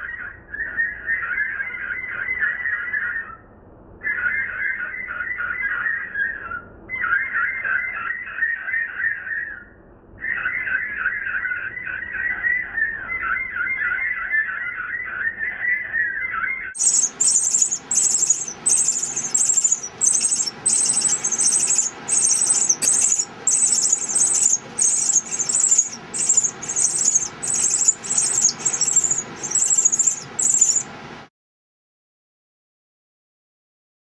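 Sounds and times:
nestlings squeaky begging calls: 16.8s - 31.0s.

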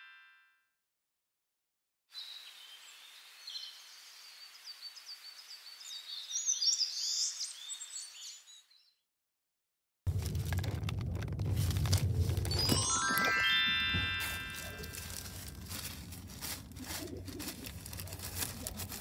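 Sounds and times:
outdoor background hiss: 2.2s - 7.3s
birds chirping: 14.7s - 19.0s.

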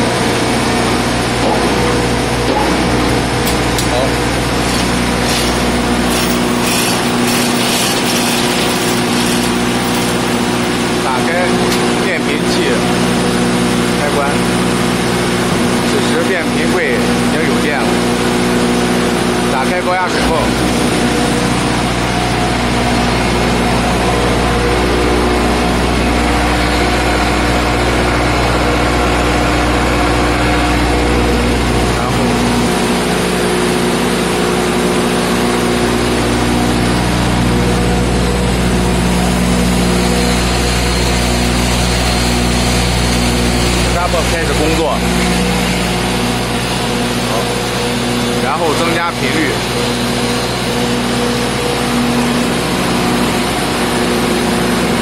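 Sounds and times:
generator engine humming: 0.0s - 55.0s.

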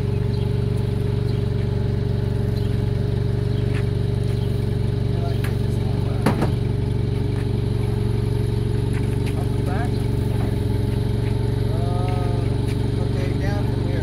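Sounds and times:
forklift engine idling: 0.0s - 14.0s.

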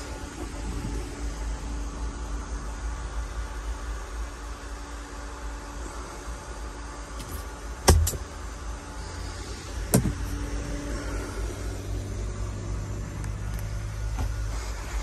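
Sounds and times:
steady low hum: 0.0s - 15.0s
compartment panel knocking shut: 9.9s - 10.2s.

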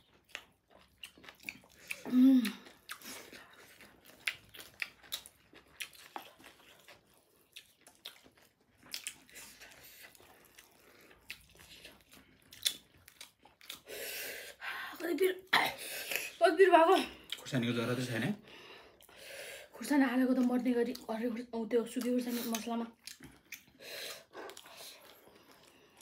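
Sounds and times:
people chewing food: 0.0s - 26.0s
mouth clicks and smacks: 11.3s - 13.9s, 22.0s - 25.1s.

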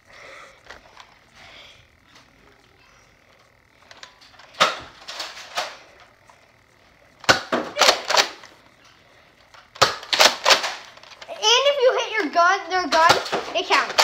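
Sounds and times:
toy blasters clacking: 7.2s - 8.6s, 9.5s - 14.0s.

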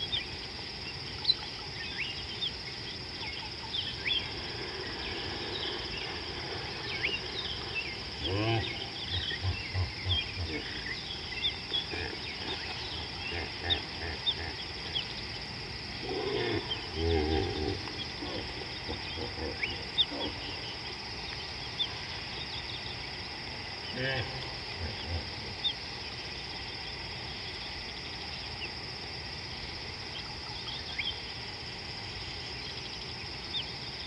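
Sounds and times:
insect chorus: 0.0s - 34.0s
animal grunting call: 8.2s - 11.0s, 16.0s - 20.6s.

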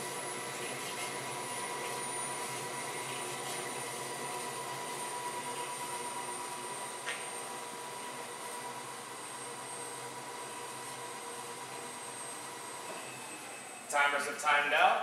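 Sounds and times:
mixer motor humming: 0.0s - 14.0s.

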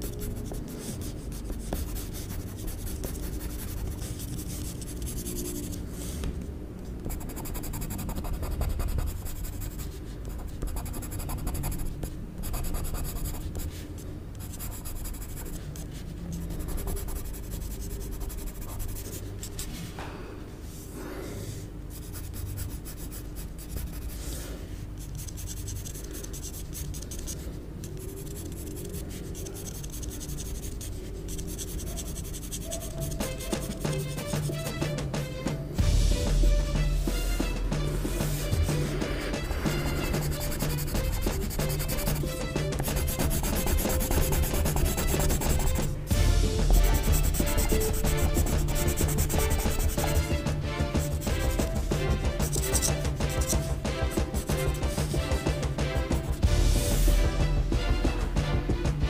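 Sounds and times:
pencil scratching on paper: 0.0s - 6.2s, 7.0s - 13.8s, 14.4s - 19.7s, 21.9s - 24.4s, 25.0s - 34.8s, 38.0s - 45.9s, 46.7s - 51.8s, 52.4s - 55.4s.

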